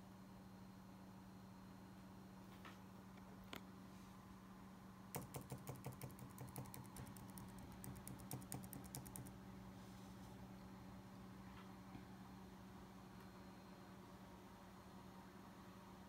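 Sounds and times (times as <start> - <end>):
faint low hum: 0.0 - 16.0
volume key clicks: 5.2 - 9.3.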